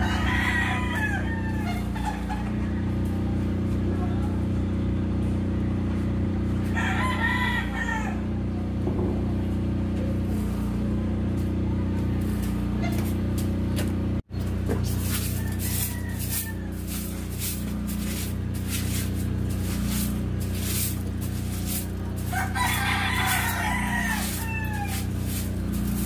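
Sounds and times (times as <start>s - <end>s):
rooster crowing: 0.0s - 3.7s, 6.6s - 8.4s, 15.1s - 18.3s, 21.7s - 26.0s
steady low drone: 7.6s - 26.0s.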